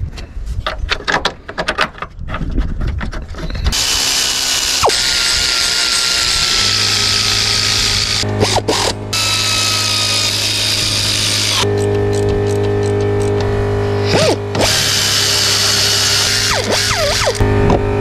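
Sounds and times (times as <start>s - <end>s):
pneumatic air ratchet whirring: 3.7s - 13.4s, 14.0s - 17.4s.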